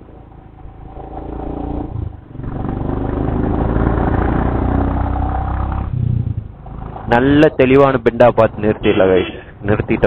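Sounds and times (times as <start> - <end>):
motorcycle engine under throttle: 0.2 - 7.6.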